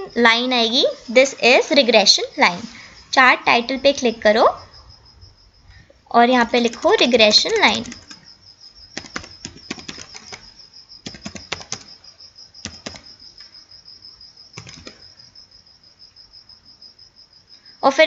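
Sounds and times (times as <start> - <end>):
keyboard keys clicking: 6.6 - 8.2, 9.0 - 12.0, 12.6 - 13.2, 14.6 - 15.1.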